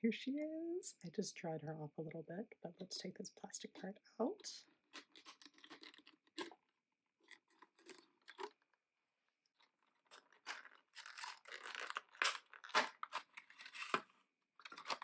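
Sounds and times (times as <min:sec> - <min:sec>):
plastic packaging crinkling: 0:04.9 - 0:06.6, 0:07.2 - 0:08.6, 0:09.8 - 0:15.0.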